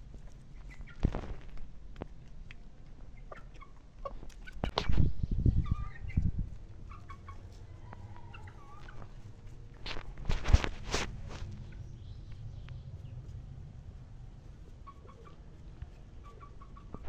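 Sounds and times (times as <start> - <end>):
chickens clucking: 0.1 - 13.5, 14.4 - 17.0.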